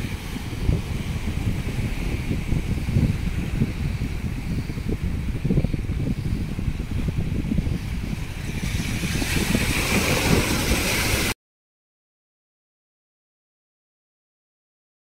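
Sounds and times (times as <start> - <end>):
surf rushing on rocks: 0.0 - 5.6, 6.7 - 11.4
wind buffeting microphone: 0.0 - 11.4.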